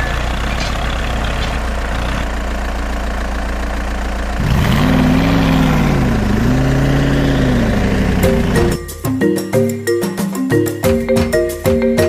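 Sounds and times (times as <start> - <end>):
heavy vehicle engine idling and revving: 0.0 - 9.0.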